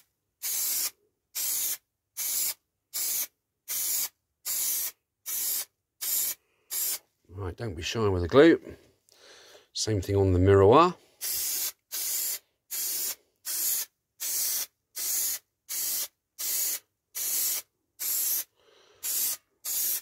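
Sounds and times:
aerosol can hissing: 0.0s - 7.0s, 11.2s - 20.0s.

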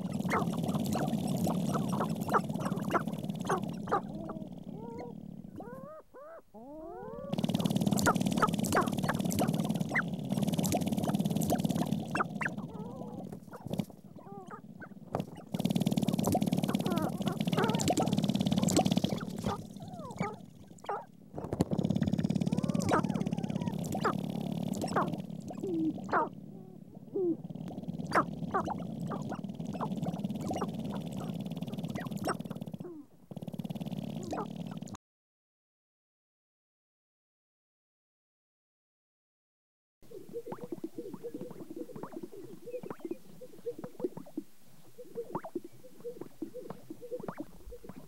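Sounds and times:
rising whining bird calls: 0.0s - 33.0s, 40.1s - 48.0s
grouse clucking calls: 0.0s - 35.0s, 40.1s - 48.0s
grouse feet stamping and tail rattling: 7.4s - 20.4s.

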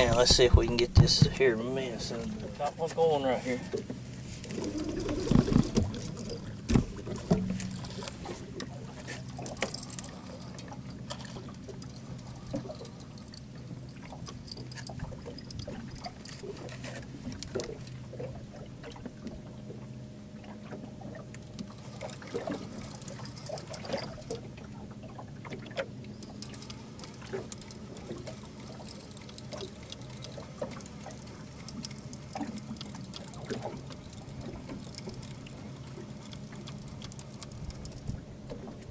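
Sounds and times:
water lapping against boat hull: 0.0s - 38.9s
small clicks and splashes: 3.7s - 38.9s.

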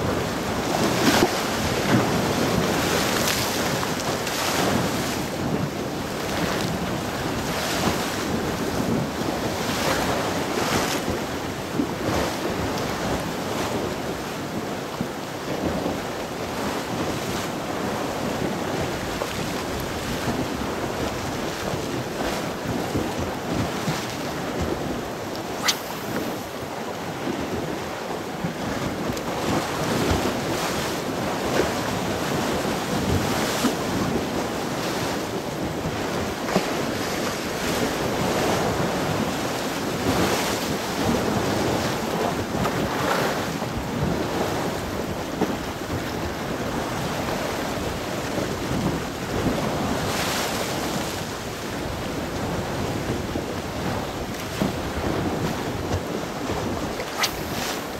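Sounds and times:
sea waves washing ashore: 0.0s - 57.9s
wind buffeting microphone: 0.0s - 57.9s
sharp click: 25.6s - 26.3s, 57.1s - 57.5s.

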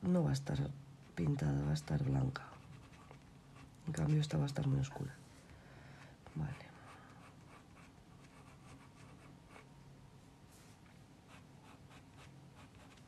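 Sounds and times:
faint low hum: 0.0s - 13.0s
pencil scratching on paper: 2.5s - 3.7s, 7.2s - 9.7s, 11.3s - 13.0s.

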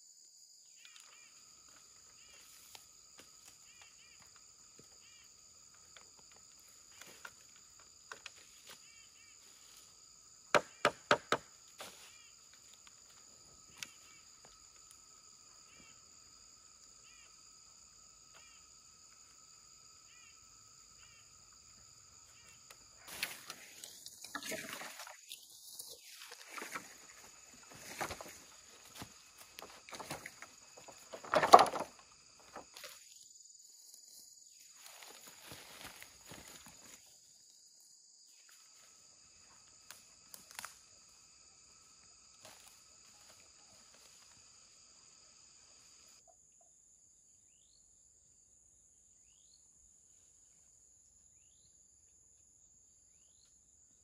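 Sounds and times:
high insect drone: 0.0s - 54.0s
bamboo poles knocking together: 10.6s - 11.5s, 29.0s - 32.7s
dry leaves crunching underfoot: 34.7s - 37.0s.

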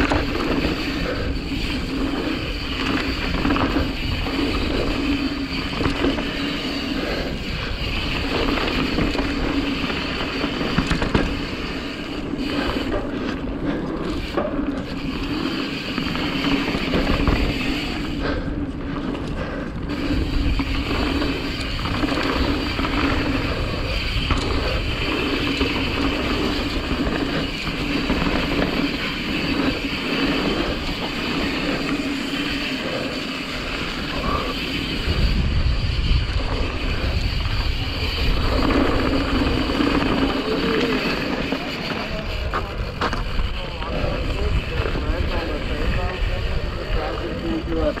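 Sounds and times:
bike rattling and knocking: 0.0s - 48.0s
bike tyres on dirt: 0.0s - 48.0s
wind on microphone: 33.5s - 48.0s.

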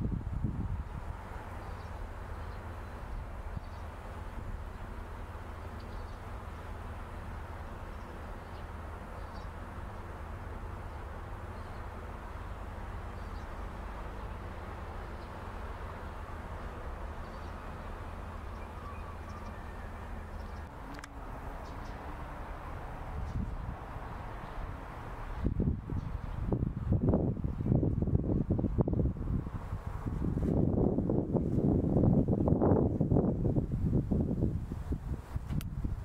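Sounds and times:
steady low rumble: 0.0s - 36.0s
faint bird chirps: 18.4s - 20.7s.

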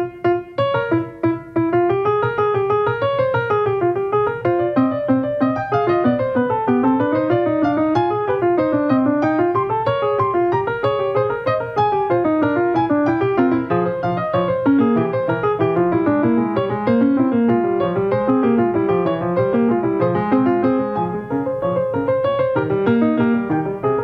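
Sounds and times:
piano music: 0.0s - 24.0s.

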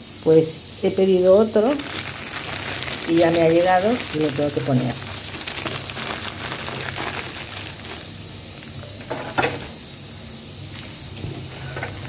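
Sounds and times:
pressure cooker venting steam: 1.2s - 9.8s
plastic package handling: 1.6s - 8.2s.

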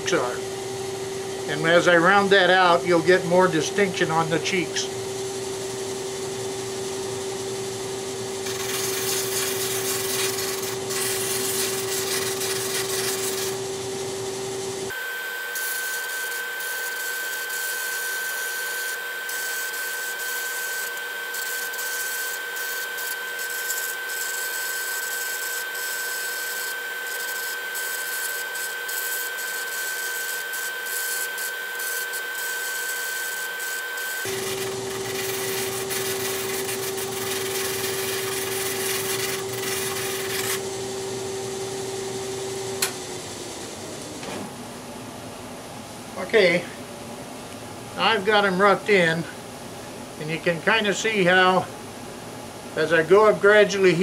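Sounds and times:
drum sander humming: 0.0s - 53.1s
wood rubbing on sanding sleeve: 8.5s - 13.6s, 34.3s - 40.6s.

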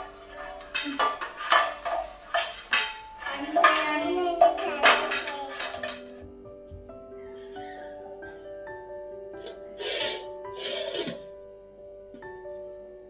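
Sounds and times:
metal pots and utensils clattering: 0.0s - 6.3s.

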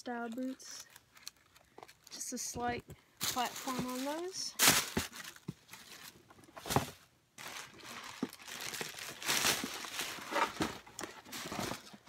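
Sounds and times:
shoe packaging rustling: 3.2s - 12.0s.

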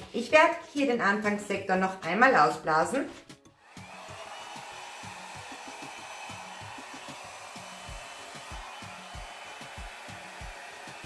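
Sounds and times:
hair dryer blowing: 3.6s - 11.0s.

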